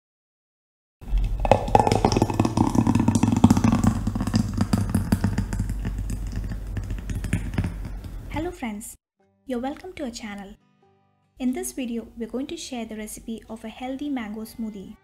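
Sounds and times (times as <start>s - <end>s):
blender running: 1.2s - 7.6s.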